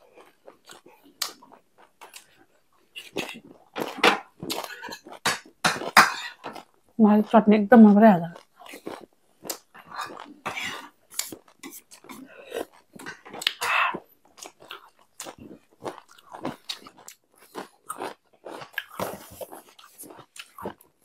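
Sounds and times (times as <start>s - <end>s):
people chewing and crunching food: 0.0s - 21.0s
wet mouth clicks: 9.5s - 14.5s.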